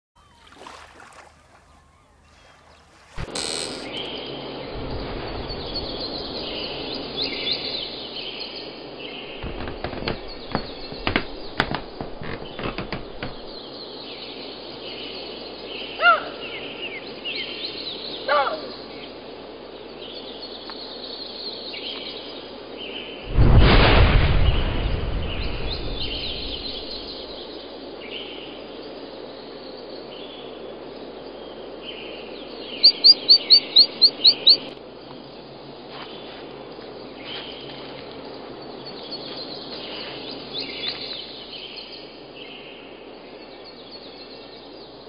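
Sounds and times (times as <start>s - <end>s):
birds chirping: 0.2s - 23.2s, 25.3s - 45.0s
steady background hiss: 0.2s - 45.0s
bird call of quick repeated notes: 1.4s - 4.1s, 32.8s - 34.7s.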